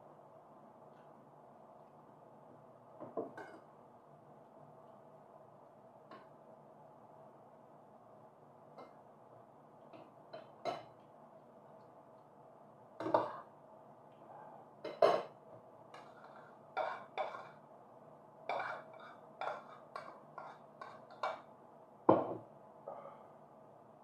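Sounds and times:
cutlery clinking on dishes: 3.2s - 3.7s, 10.4s - 11.0s, 14.9s - 15.4s.

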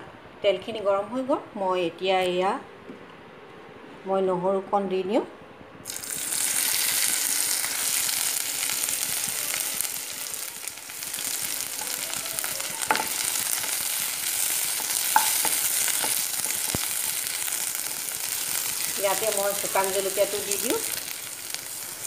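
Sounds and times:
garlic sizzling in oil: 5.8s - 22.0s.

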